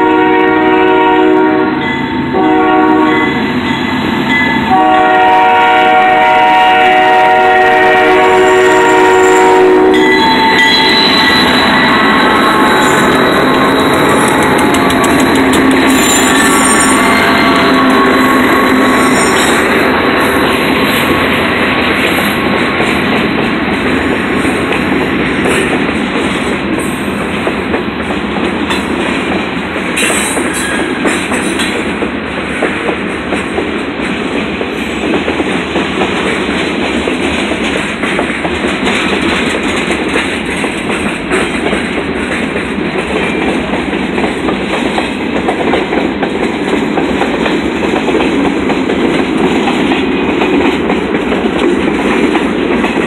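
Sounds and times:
train wheels rumbling on rail: 0.0s - 53.0s
wheels clicking over track joints: 13.2s - 17.0s.

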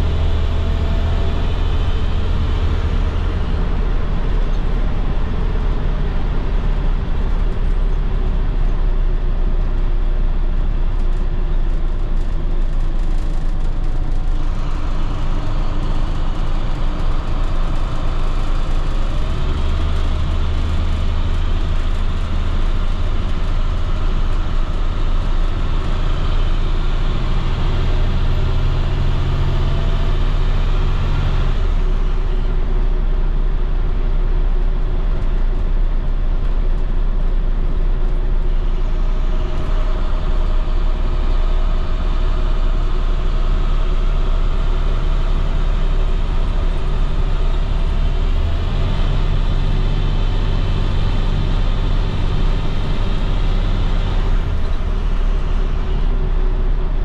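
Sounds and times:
bus diesel engine pulling: 0.0s - 57.0s
road and tyre noise: 0.0s - 57.0s.

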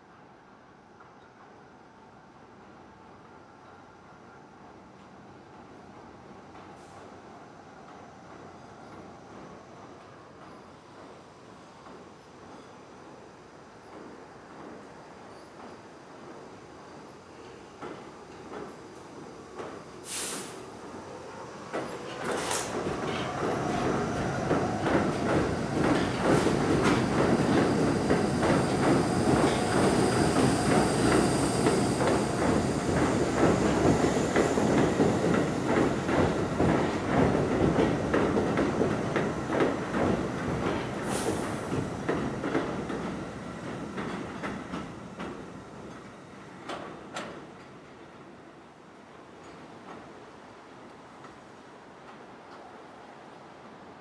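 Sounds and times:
train wheels clickety-clack: 3.2s - 4.3s, 6.4s - 7.2s, 7.8s - 12.8s, 13.8s - 20.6s, 21.6s - 48.3s, 49.3s - 50.3s.

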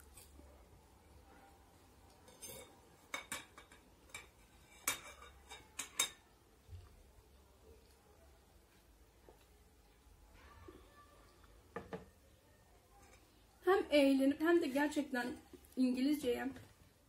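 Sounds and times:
cutlery clinking on ceramic bowl: 2.2s - 6.3s.

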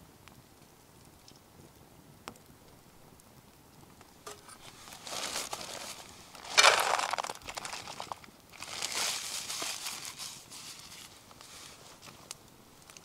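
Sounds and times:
crinkling and rustling: 4.0s - 13.0s.

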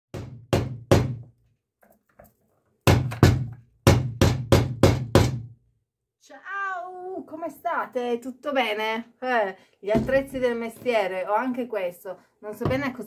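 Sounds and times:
hammer striking chisel into wood: 0.1s - 1.3s, 2.8s - 5.5s.

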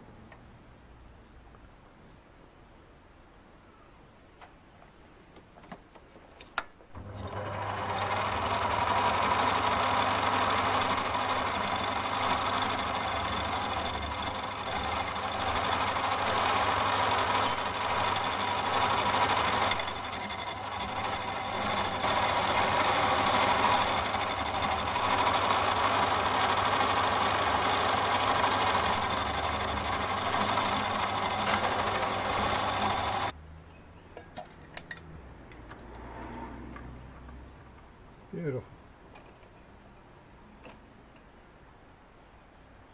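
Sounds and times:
lathe motor running: 7.0s - 33.3s.

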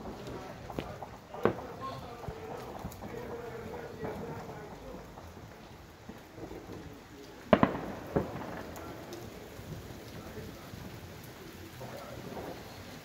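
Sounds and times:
faint scattered pops: 0.0s - 13.0s
fireworks bangs: 0.0s - 13.0s.

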